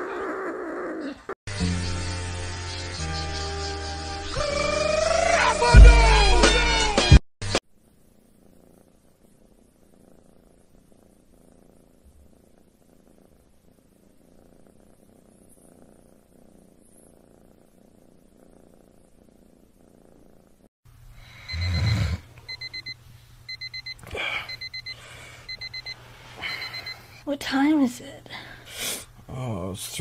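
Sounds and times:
kitten purring: 0:00.0 - 0:01.4, 0:07.8 - 0:20.7
alarm clock beeping: 0:21.5 - 0:27.1.

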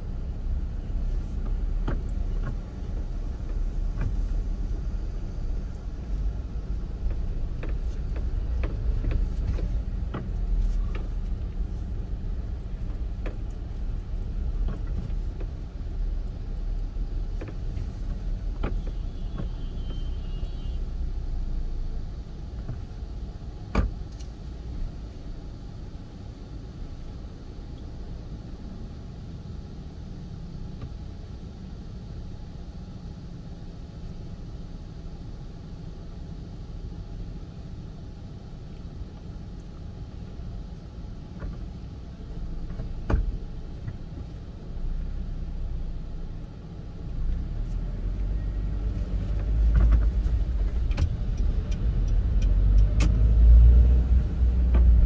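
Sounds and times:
car engine rumble: 0:00.0 - 0:55.0.

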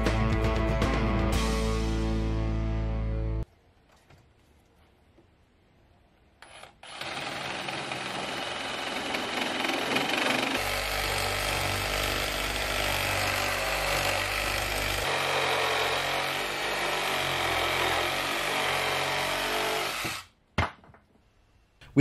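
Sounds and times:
reciprocating saw cutting wood: 0:06.7 - 0:20.3.

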